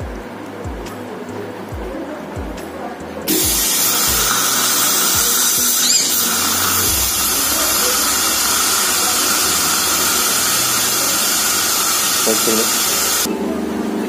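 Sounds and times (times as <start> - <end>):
dental suction hissing: 3.3 - 13.3
rising squeal: 5.2 - 13.2.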